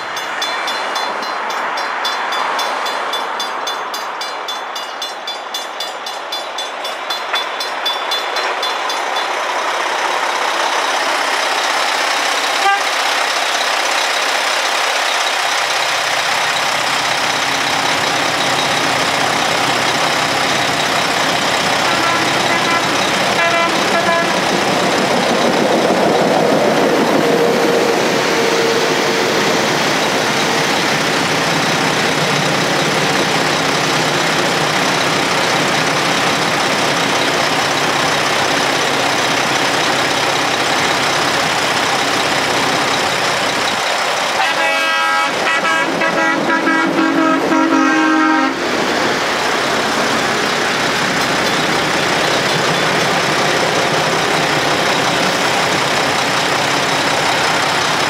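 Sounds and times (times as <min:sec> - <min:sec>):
railroad crossing bells ringing: 0:00.0 - 0:58.0
horn toots: 0:12.6 - 0:13.0, 0:21.8 - 0:24.4, 0:44.4 - 0:48.6.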